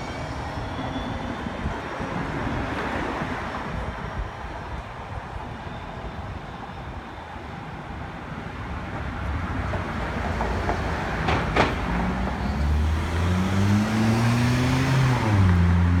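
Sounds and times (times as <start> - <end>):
traffic noise: 0.0 - 16.0
vehicle engine accelerating: 12.5 - 16.0.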